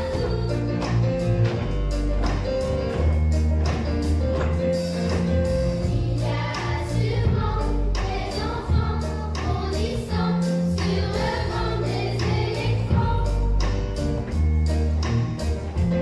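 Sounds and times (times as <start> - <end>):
choir singing: 5.8 - 13.5.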